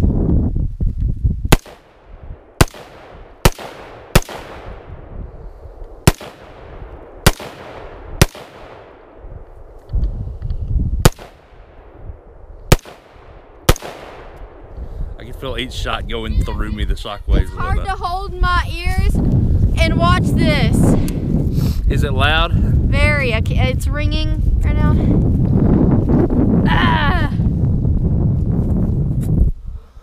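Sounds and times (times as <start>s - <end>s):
low rumble: 0.0s - 29.6s
rifle shots echoing: 1.5s - 5.1s, 6.0s - 9.3s, 11.0s - 14.7s.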